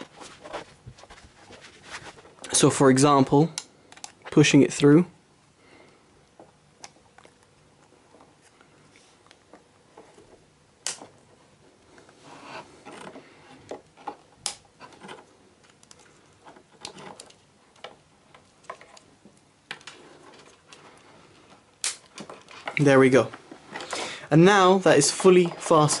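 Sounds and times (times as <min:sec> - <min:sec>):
plastic clicks and scrapes: 0:12.5 - 0:19.1
sharp plastic clicks: 0:21.8 - 0:22.9.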